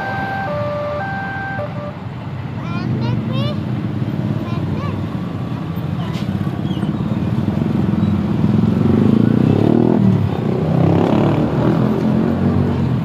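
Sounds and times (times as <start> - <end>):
small motorcycle engines accelerating: 2.8 - 13.0.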